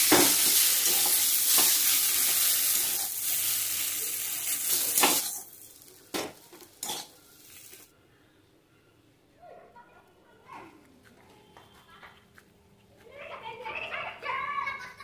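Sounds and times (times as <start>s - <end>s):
food sizzling in hot oil: 0.0s - 7.9s
metal spatula scraping a pan: 6.8s - 7.2s.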